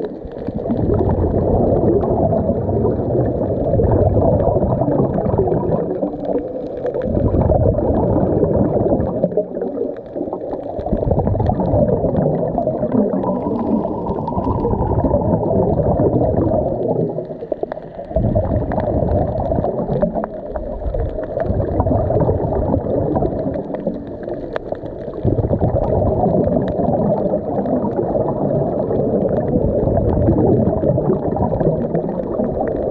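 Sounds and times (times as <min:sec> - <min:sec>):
underwater bubbles gurgling: 0:00.0 - 0:32.9.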